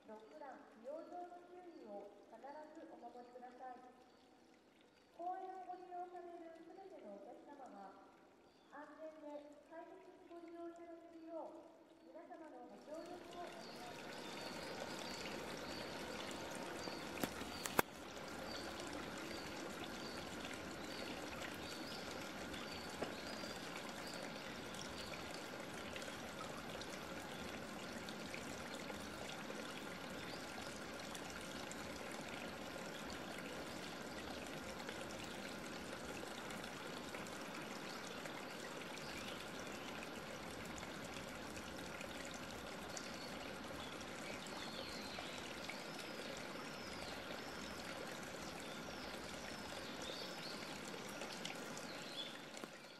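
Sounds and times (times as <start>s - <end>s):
trickling running water: 0.0s - 52.9s
sharp clicks: 17.2s - 17.9s.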